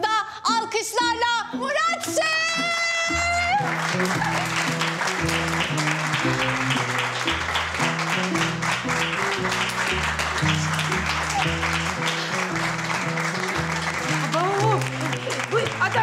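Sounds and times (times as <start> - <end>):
background music with bass: 2.4 - 16.0
crowd clapping: 3.2 - 16.0.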